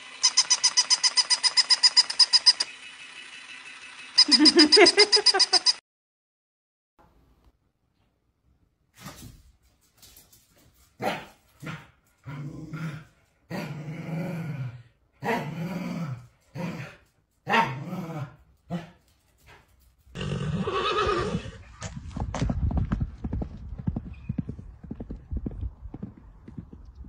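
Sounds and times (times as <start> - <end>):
dog growling barks: 11.0 - 19.0.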